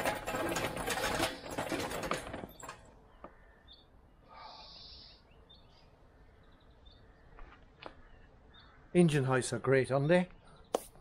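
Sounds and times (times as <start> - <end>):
castors rattling over tarmac: 0.0 - 3.0
bird chirp: 2.5 - 11.0.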